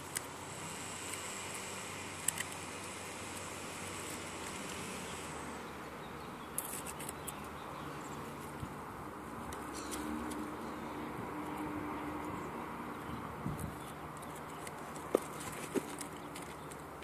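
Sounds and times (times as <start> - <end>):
tape peeling hiss: 0.0 - 5.6.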